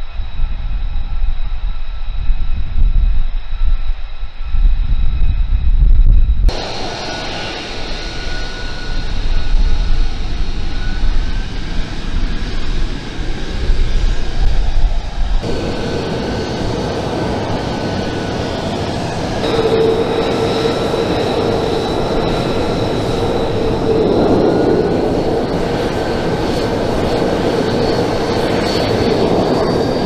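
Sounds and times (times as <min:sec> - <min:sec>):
jet engines whining: 0:06.5 - 0:30.0.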